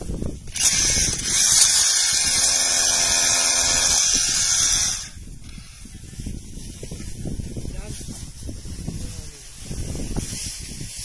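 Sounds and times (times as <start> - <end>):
hammer drill boring into rock: 0.4 - 5.8.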